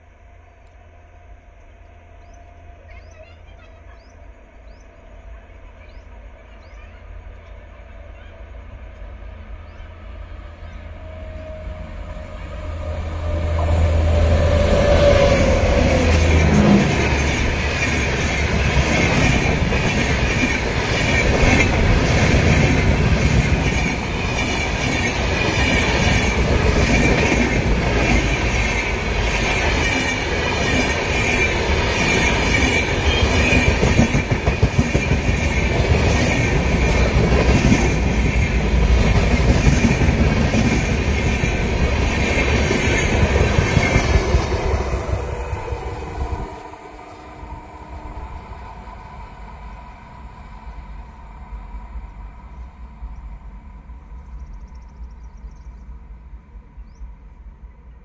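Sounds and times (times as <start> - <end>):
train coaches rushing past: 5.2 - 53.9
train horn: 10.6 - 17.3.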